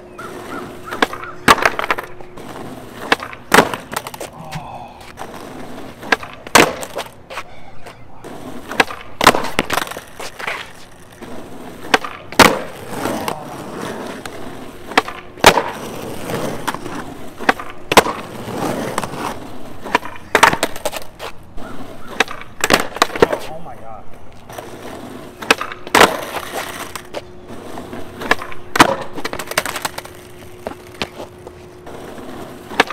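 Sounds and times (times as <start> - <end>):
skateboard wheels rolling and scraping: 0.0 - 32.9
skateboard landing on asphalt: 0.2 - 4.4, 5.0 - 7.4, 8.2 - 23.5, 24.4 - 32.9
shoe scuffs: 6.9 - 8.0, 10.2 - 11.0, 30.6 - 31.8.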